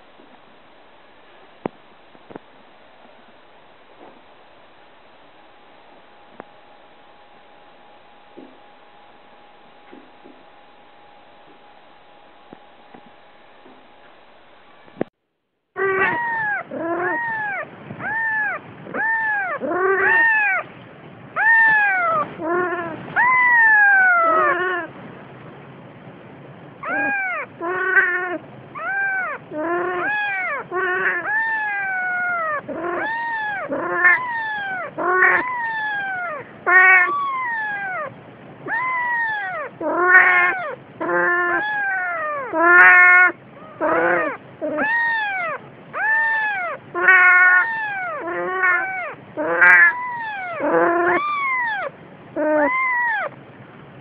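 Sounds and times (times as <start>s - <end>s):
kitten mewing: 15.8s - 20.6s, 21.4s - 24.9s, 26.8s - 53.4s.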